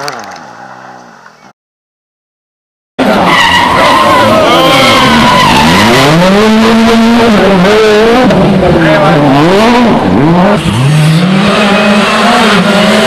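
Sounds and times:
rally car engine revving: 3.0s - 13.0s.

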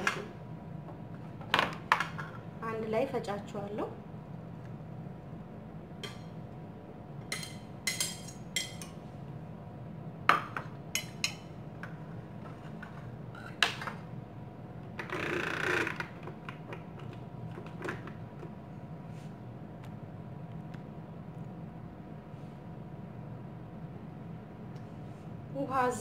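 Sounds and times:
steady low hum: 0.0s - 15.2s, 15.9s - 26.0s
plates and knife clinking: 7.3s - 9.0s.

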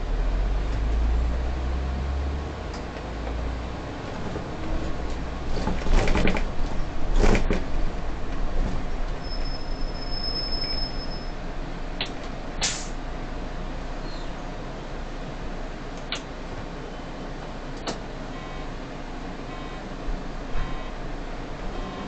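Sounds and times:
bus engine running: 0.0s - 22.0s
bus doors clattering: 2.7s - 11.1s, 12.0s - 13.0s, 17.6s - 18.1s
air hiss: 12.6s - 13.0s
click: 16.0s - 16.3s, 17.8s - 18.0s
steady high beep: 20.6s - 21.0s.

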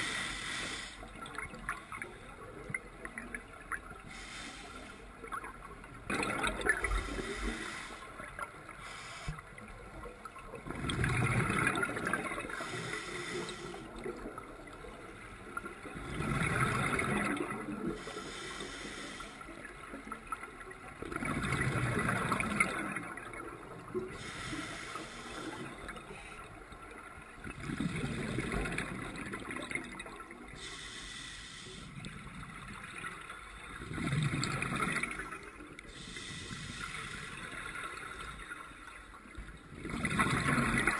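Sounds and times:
diver breathing on a regulator: 0.0s - 1.2s, 4.0s - 5.1s, 6.8s - 9.5s, 12.4s - 14.0s, 17.9s - 19.7s, 24.1s - 26.4s, 30.5s - 32.1s, 35.9s - 37.9s
exhaled bubbles gurgling: 0.0s - 31.0s, 31.9s - 40.9s.

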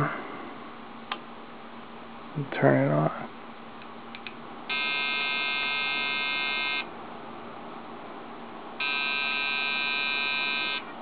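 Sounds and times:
steady hum: 0.0s - 11.0s
computer long beeps: 4.7s - 6.9s, 8.8s - 10.8s.

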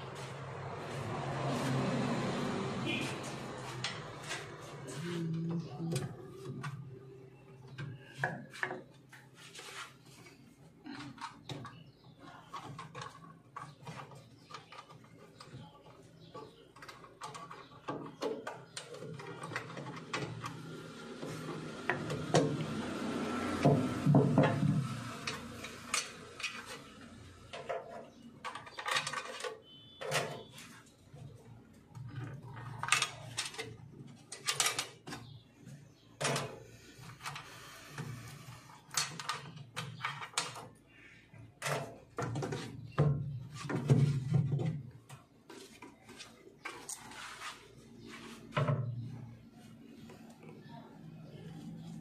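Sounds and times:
tools and metal parts clattering: 10.9s - 20.6s, 24.0s - 31.3s, 31.9s - 37.6s, 38.2s - 40.8s, 41.4s - 44.9s.

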